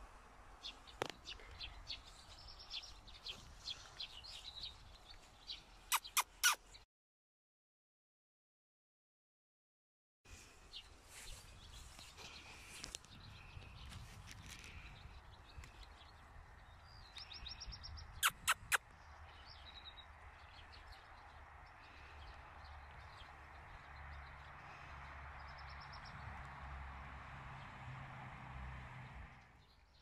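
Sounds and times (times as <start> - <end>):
small birds chirping: 0.6 - 6.8, 10.4 - 26.5.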